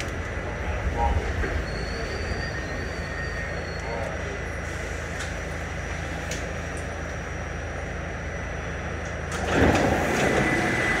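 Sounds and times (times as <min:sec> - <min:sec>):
subway car humming: 0:00.0 - 0:11.0
sliding doors closing: 0:09.3 - 0:11.0.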